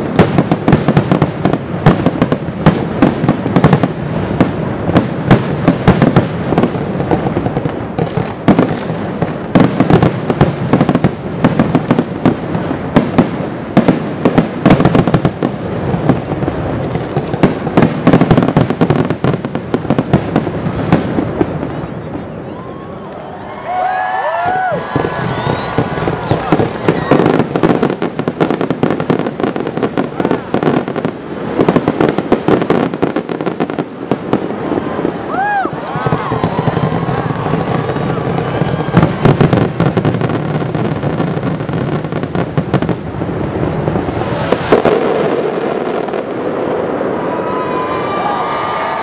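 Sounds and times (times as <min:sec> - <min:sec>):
fireworks booming and cracking: 0:00.0 - 0:49.0.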